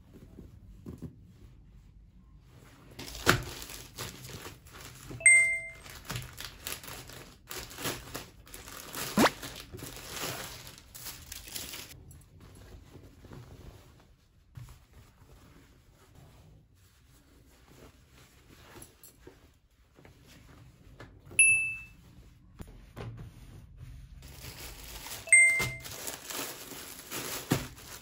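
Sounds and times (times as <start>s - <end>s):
packaging crinkling and rustling: 3.0s - 5.2s, 5.8s - 12.0s, 24.2s - 28.0s.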